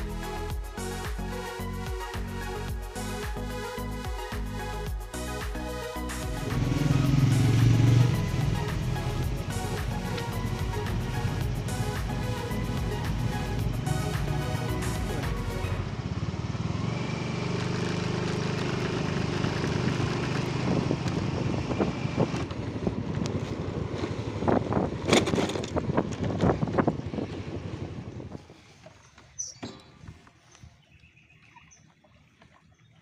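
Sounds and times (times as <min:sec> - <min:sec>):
motor scooter engine running: 0:06.2 - 0:28.3
wind and road noise: 0:06.3 - 0:33.0.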